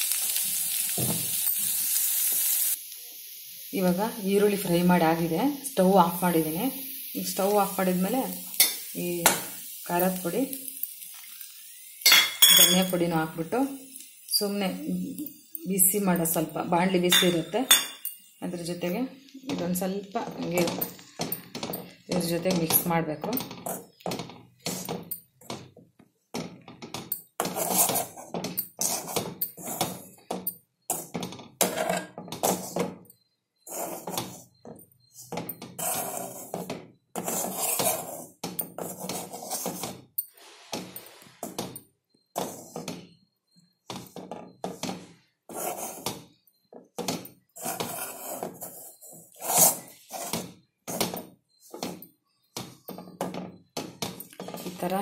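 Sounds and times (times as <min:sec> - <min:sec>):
metal spoon scraping a pan: 0:07.3 - 0:25.3, 0:26.9 - 0:32.9, 0:33.7 - 0:41.6, 0:42.4 - 0:43.0, 0:44.0 - 0:46.2, 0:47.1 - 0:52.0.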